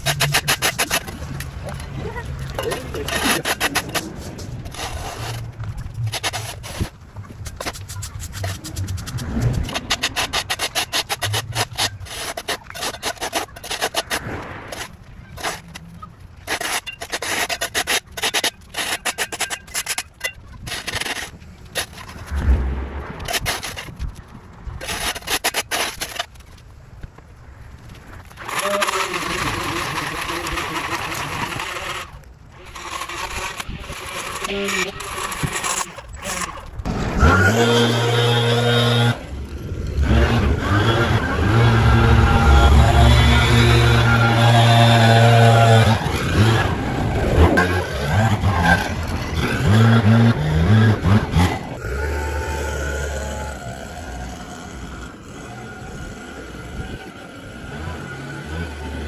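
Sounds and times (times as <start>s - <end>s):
shovel scraping concrete: 0.0s - 26.6s, 28.2s - 54.7s
small gas engine revving: 28.4s - 36.4s, 37.2s - 39.3s, 39.9s - 59.0s.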